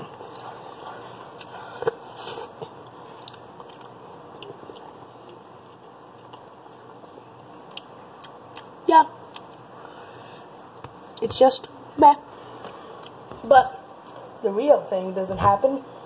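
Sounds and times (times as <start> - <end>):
person chewing food: 0.0 - 9.8, 12.6 - 13.4.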